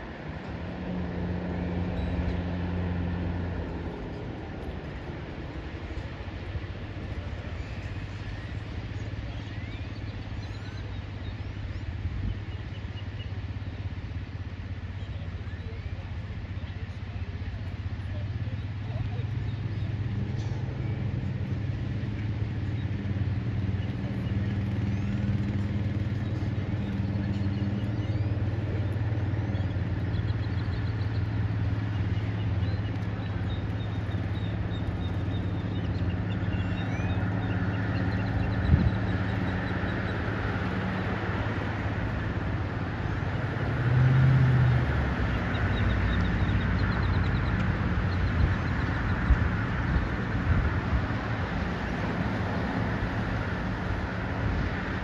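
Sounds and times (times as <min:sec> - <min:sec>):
low engine-like hum: 0:00.0 - 0:55.0
small birds chirping: 0:07.1 - 0:42.0, 0:45.1 - 0:50.3.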